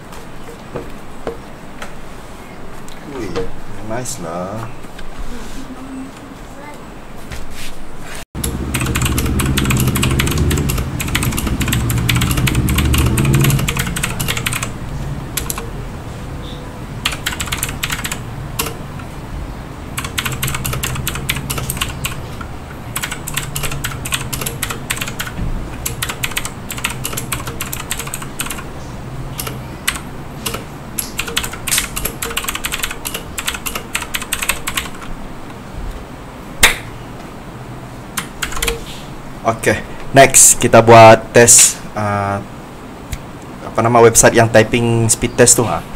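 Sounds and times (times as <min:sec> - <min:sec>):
mechanical keyboard typing: 0:08.4 - 0:15.8, 0:17.0 - 0:18.8, 0:20.0 - 0:28.7, 0:29.4 - 0:35.1, 0:38.2 - 0:38.8.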